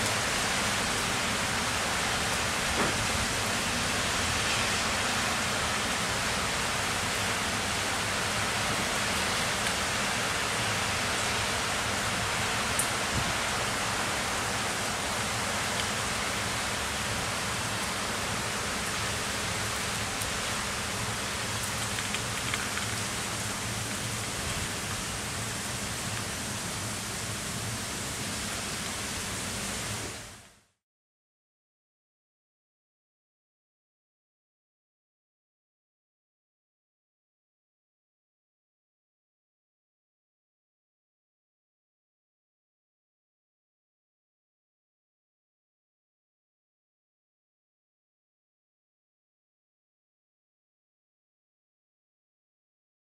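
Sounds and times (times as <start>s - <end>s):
heavy rain falling: 0.0s - 30.5s.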